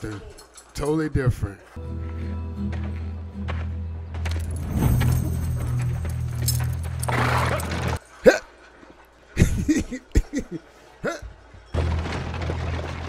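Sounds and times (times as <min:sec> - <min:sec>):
background music: 0:01.8 - 0:08.0
man laughing: 0:09.4 - 0:11.3.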